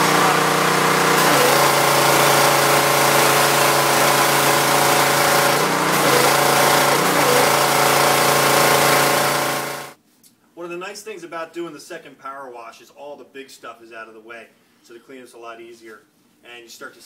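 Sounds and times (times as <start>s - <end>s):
water spray hissing: 0.0s - 9.5s
pressure washer motor hum: 0.0s - 10.0s.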